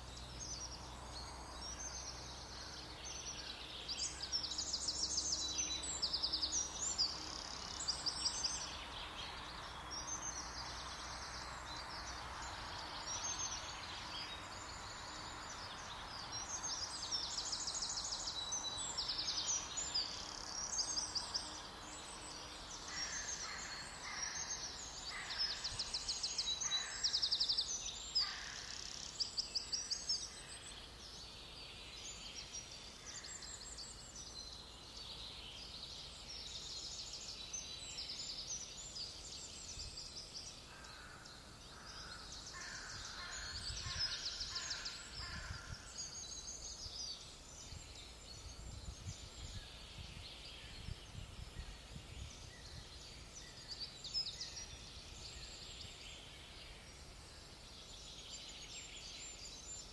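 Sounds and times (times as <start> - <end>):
songbirds trilling: 0.0 - 59.9.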